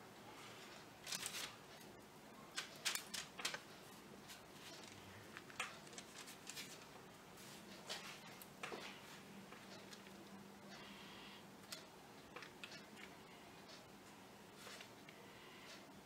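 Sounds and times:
pastry rustling on baking paper: 0:00.4 - 0:01.8, 0:02.5 - 0:08.4.

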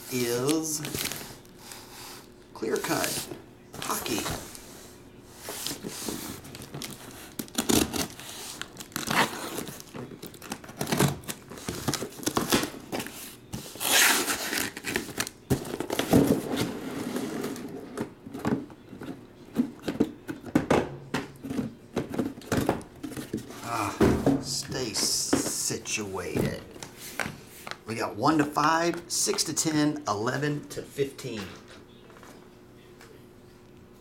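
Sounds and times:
packing tape tearing: 0:05.6 - 0:16.4.

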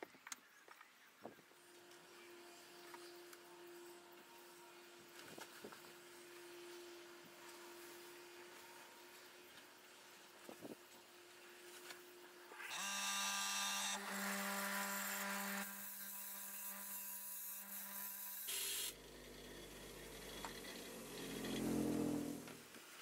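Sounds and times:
bench grinder motor hum: 0:12.5 - 0:22.8.

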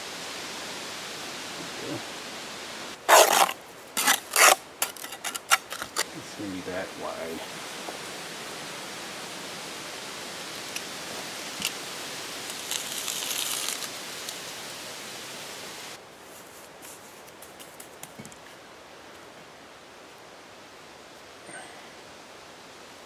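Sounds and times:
steady hiss: 0:00.0 - 0:23.0
trowel scraping and tapping mortar: 0:03.1 - 0:06.1.

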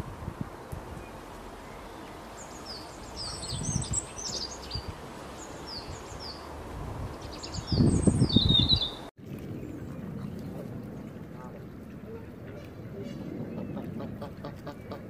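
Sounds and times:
songbirds chirping: 0:00.6 - 0:15.0.

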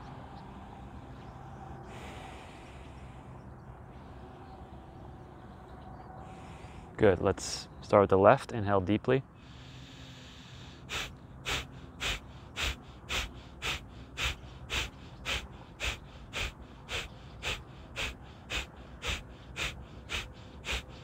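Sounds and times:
forceful nasal exhalations: 0:09.4 - 0:21.0.

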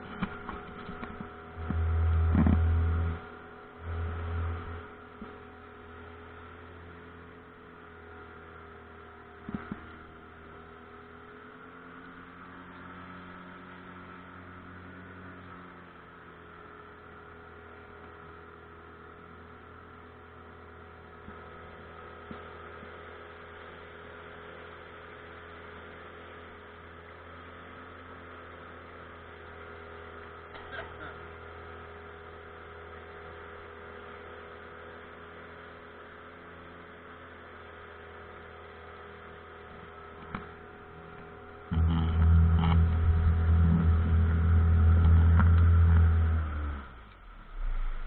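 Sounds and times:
boat motor humming: 0:00.0 - 0:48.0.

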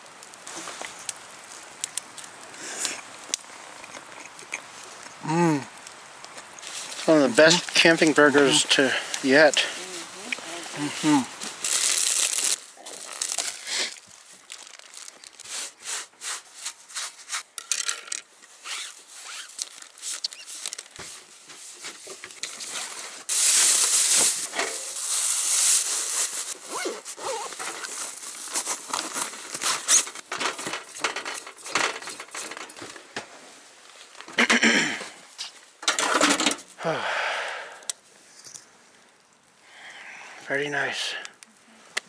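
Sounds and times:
plastic and fabric bags rustling: 0:06.6 - 0:17.6, 0:18.5 - 0:34.3.

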